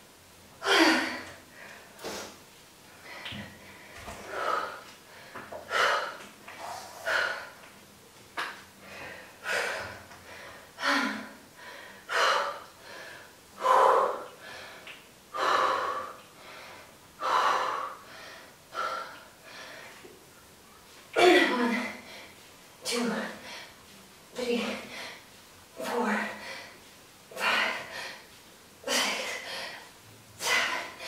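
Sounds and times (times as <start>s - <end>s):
woman breathing hard: 3.0s - 7.6s, 8.8s - 20.1s, 24.7s - 25.3s, 26.1s - 31.0s.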